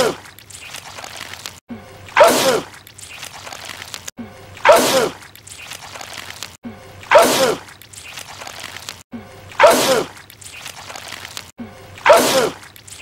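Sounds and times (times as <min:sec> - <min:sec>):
man sneezing: 0:02.2 - 0:02.7, 0:12.0 - 0:12.6.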